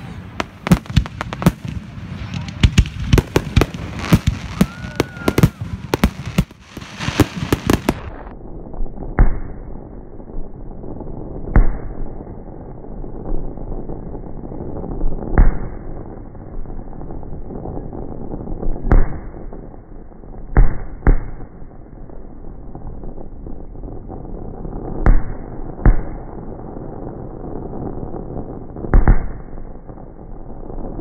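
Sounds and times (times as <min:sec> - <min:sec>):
fireworks bangs and crackling: 0:00.0 - 0:31.0
firework whistle: 0:03.2 - 0:12.3.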